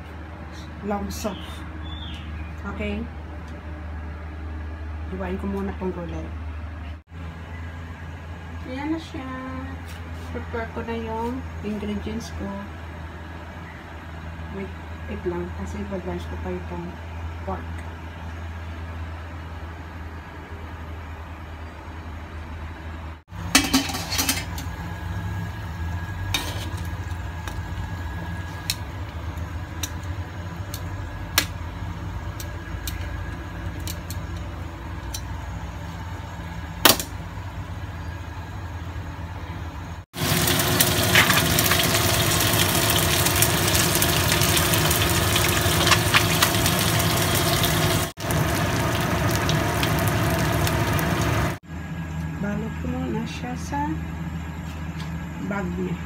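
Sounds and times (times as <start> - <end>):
steady low hum: 0.0 - 56.0
fish sizzling in hot oil: 40.2 - 51.6.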